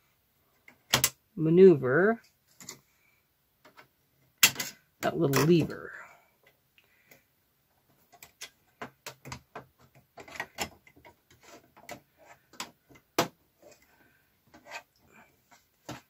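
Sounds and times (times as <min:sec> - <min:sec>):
plastic and metal parts clicking: 0:00.6 - 0:01.2, 0:08.0 - 0:13.9.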